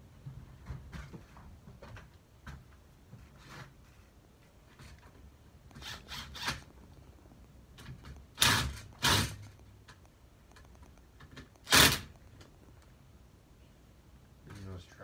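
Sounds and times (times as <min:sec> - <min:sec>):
cordless drill driving screws: 0:05.7 - 0:06.6, 0:08.4 - 0:09.4, 0:11.6 - 0:12.1.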